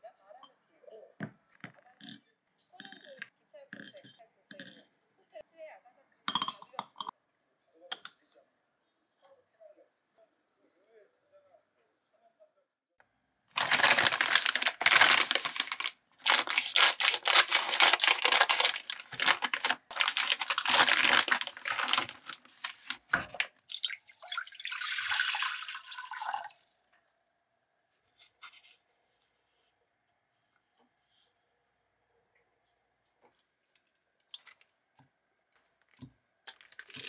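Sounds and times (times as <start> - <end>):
plastic pouches tearing: 13.6 - 23.6, 36.5 - 37.0
plastic pouches crinkling: 13.6 - 23.9, 36.5 - 37.0.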